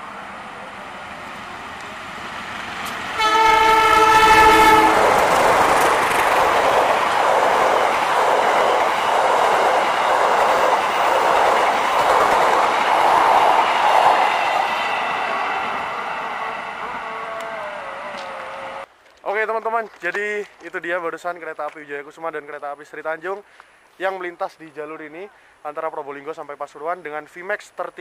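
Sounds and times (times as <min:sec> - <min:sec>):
train wheels clattering on rails: 0:02.6 - 0:15.2
locomotive horn chord: 0:03.2 - 0:05.2.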